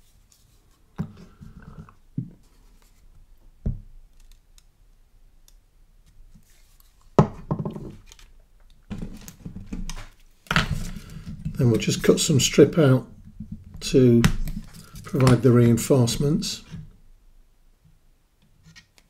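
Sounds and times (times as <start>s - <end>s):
plastic parts knocking and scraping: 7.2s - 12.3s, 13.2s - 15.9s.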